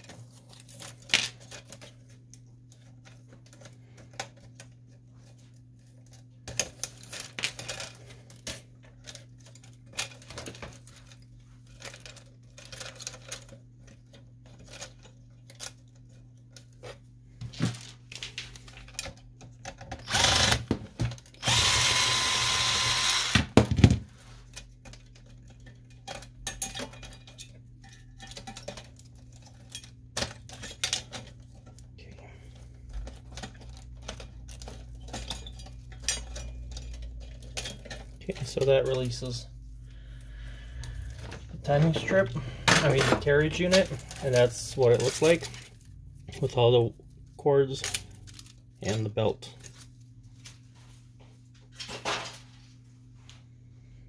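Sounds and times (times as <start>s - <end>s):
cordless drill running: 20.0s - 20.7s, 21.4s - 23.5s.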